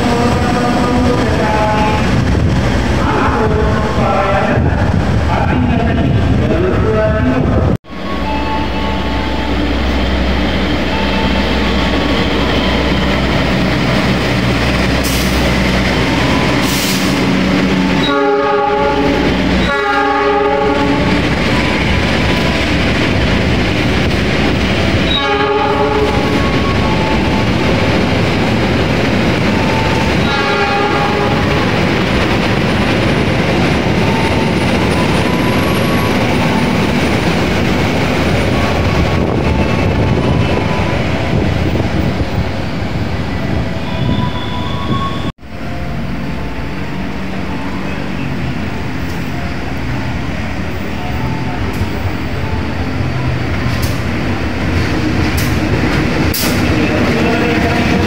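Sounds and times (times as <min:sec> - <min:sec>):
train rumbling: 0:00.0 - 0:58.0
train horn blasts: 0:17.9 - 0:21.4, 0:25.1 - 0:27.3, 0:29.8 - 0:31.8, 0:56.4 - 0:58.0.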